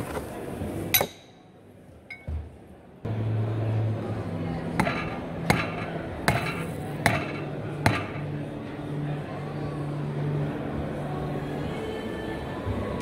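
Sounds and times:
rubber mallet striking metal bar: 4.8s - 8.3s.

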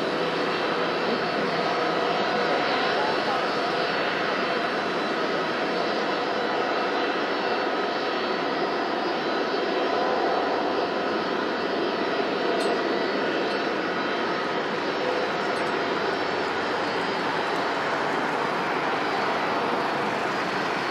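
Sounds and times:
jet engines at takeoff: 0.0s - 20.9s
thin whining tones: 0.0s - 20.9s.

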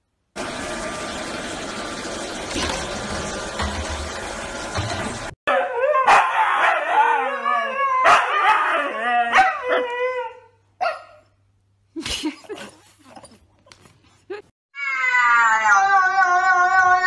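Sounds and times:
dog barking and yelping: 5.5s - 11.3s.

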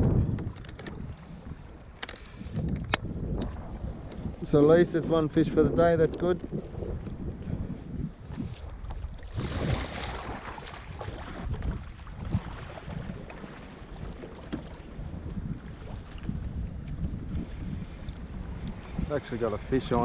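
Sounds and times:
water lapping against kayak hull: 0.0s - 20.0s
wind buffeting microphone: 0.0s - 20.0s
water splash: 9.2s - 13.9s.

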